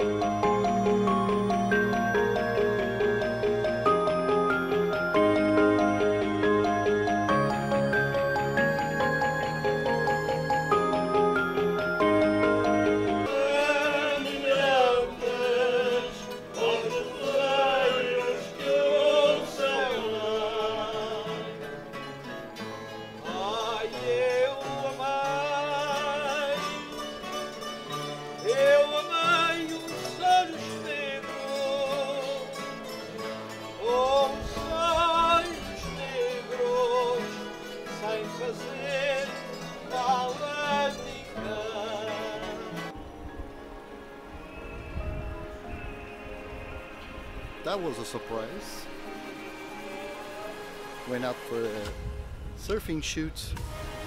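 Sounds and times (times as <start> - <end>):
strummed acoustic guitars: 0.0 - 52.2
voices singing with vibrato: 12.0 - 21.8, 23.2 - 27.2, 44.2 - 51.1.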